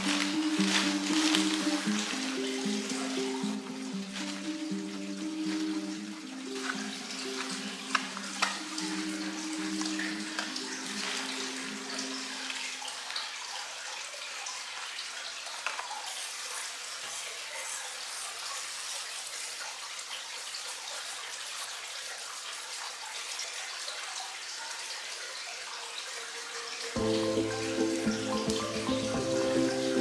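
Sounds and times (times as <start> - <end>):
hand pump sprayer spraying water: 0.0 - 12.4
music: 0.0 - 13.3, 26.4 - 30.0.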